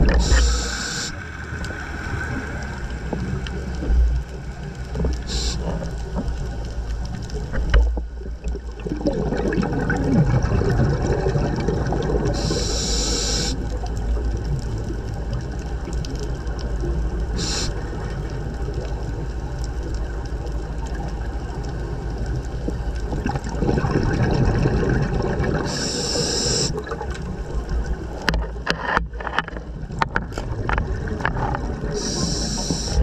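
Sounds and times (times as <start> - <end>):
exhaled bubbles gurgling: 0.0 - 28.7, 29.6 - 33.0
scuba regulator inhale hiss: 0.2 - 1.2, 5.2 - 5.7, 12.3 - 13.6, 17.4 - 17.8, 25.6 - 26.8, 32.0 - 33.0.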